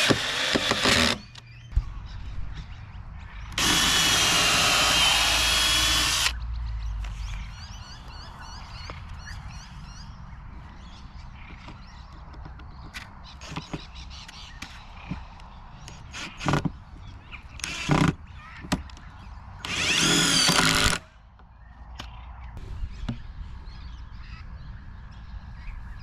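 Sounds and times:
power driver driving screws: 0.0s - 1.4s, 3.6s - 6.4s, 19.6s - 21.0s
handling knocks and clicks: 11.5s - 16.8s.

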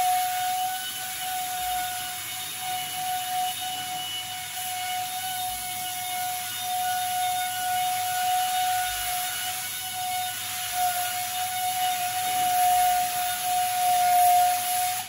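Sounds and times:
paint spray gun hissing: 0.0s - 15.0s
steady whistling tone: 0.0s - 15.0s.

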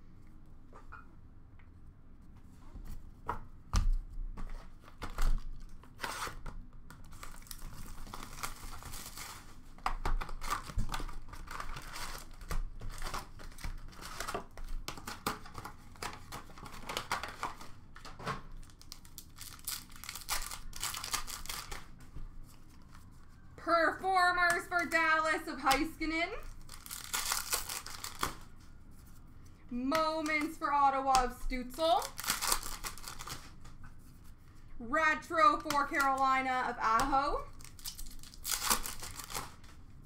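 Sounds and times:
wrapper crinkling: 7.0s - 17.7s, 18.5s - 23.4s, 26.4s - 28.8s, 31.7s - 33.7s, 37.4s - 39.8s
card pack wrapper tearing: 18.6s - 21.9s, 26.4s - 28.5s, 31.9s - 33.6s, 37.5s - 39.6s.

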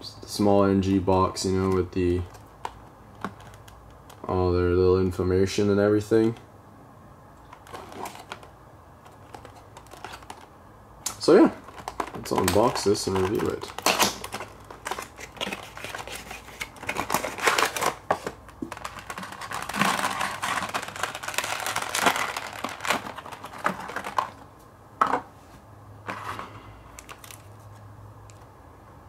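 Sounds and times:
cardboard and wrapping rustling: 7.6s - 8.5s, 9.1s - 10.5s, 11.3s - 24.4s
handling clicks and knocks: 11.6s - 15.7s.

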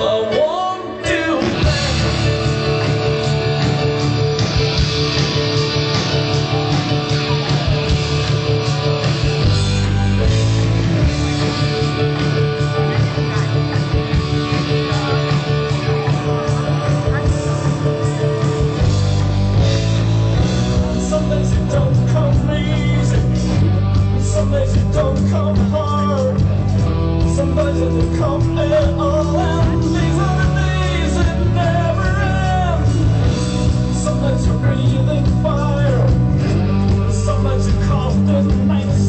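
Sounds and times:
person singing: 0.0s - 3.8s, 20.4s - 39.0s
drums: 0.0s - 39.0s
heavy bass: 0.0s - 39.0s.

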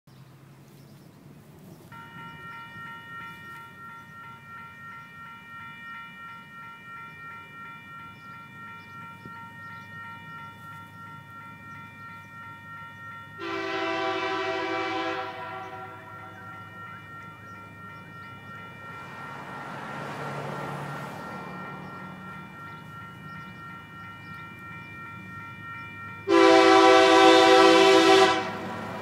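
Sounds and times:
level crossing bell ringing: 1.9s - 29.0s
locomotive horn blast: 13.4s - 16.6s, 26.3s - 29.0s.

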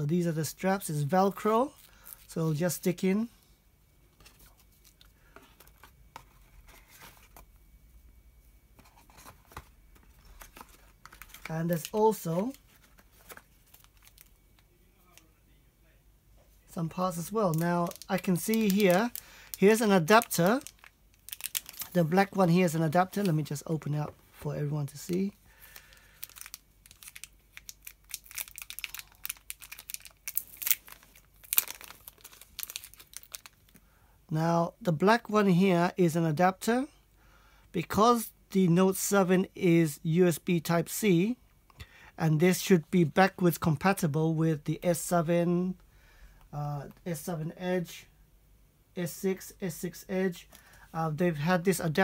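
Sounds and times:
plastic bag crinkling: 10.0s - 14.4s, 16.9s - 24.0s, 24.9s - 33.8s.

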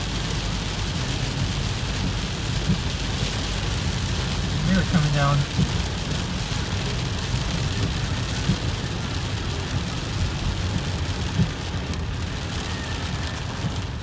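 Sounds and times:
car rumbling on wet road: 0.0s - 14.0s
rain on car windshield and roof: 0.0s - 14.0s.

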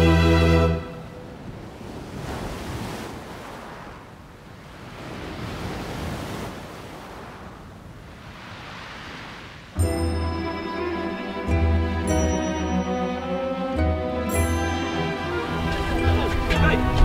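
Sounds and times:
ocean waves breaking on shore: 0.0s - 17.0s.

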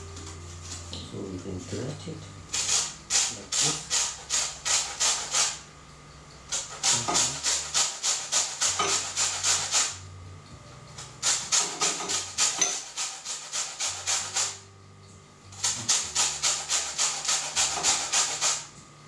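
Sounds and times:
lemon grated on metal grater: 2.5s - 5.6s, 6.4s - 10.0s, 11.0s - 14.7s, 15.5s - 18.7s.

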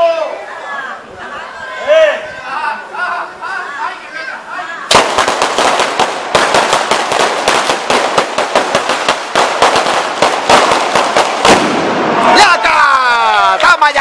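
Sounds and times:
string of firecrackers banging: 4.9s - 12.5s.

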